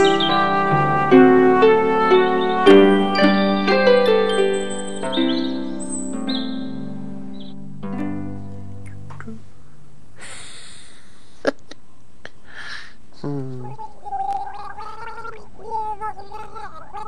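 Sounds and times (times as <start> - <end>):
short hissing noises: 10.2 - 11.5
high cartoon voice gargling: 13.2 - 17.0.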